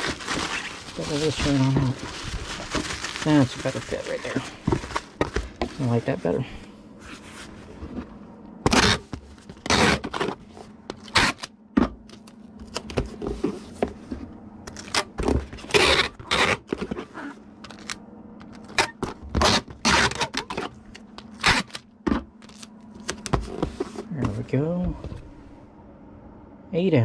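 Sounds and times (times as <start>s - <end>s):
bubble wrap rustling: 0.0s - 6.4s.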